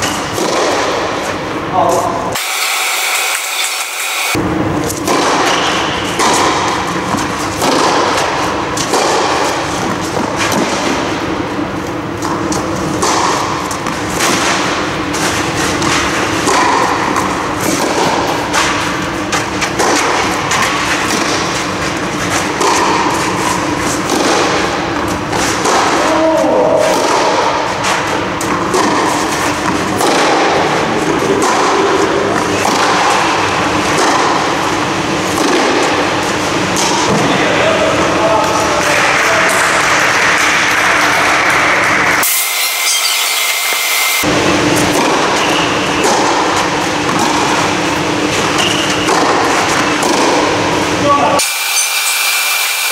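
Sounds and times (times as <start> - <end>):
tennis ball bounces: 0.0 - 2.0, 4.8 - 26.1, 26.8 - 37.3, 44.2 - 50.6
tennis racket strikes: 0.0 - 37.4, 38.3 - 52.9
steady hum: 0.0 - 52.9.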